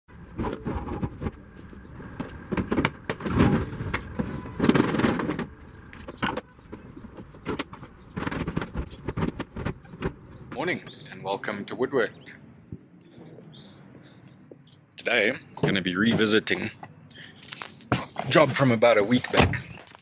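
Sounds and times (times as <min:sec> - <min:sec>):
plastic cases scraping: 0:00.3 - 0:10.4
plastic cases knocking and clattering: 0:02.2 - 0:10.2.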